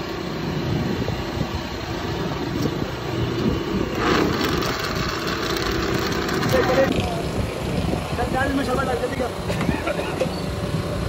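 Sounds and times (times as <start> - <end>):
roadside traffic and street bustle: 0.0 - 11.0.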